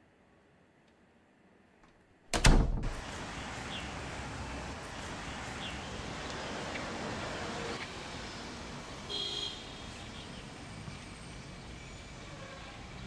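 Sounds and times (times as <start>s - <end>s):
loud thump: 2.3s - 3.0s
street traffic hum: 2.8s - 13.0s.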